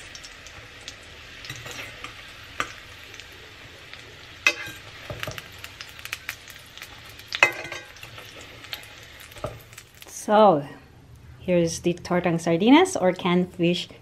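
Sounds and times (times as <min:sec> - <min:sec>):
fish cakes sizzling in oil: 0:00.0 - 0:10.4
metal fork clinking on pan: 0:04.5 - 0:05.4, 0:07.4 - 0:08.0.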